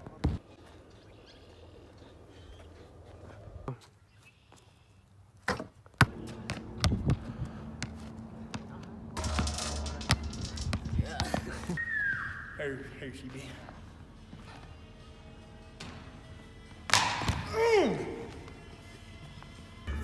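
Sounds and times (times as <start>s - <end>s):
basketball striking hoop: 9.2s - 11.5s.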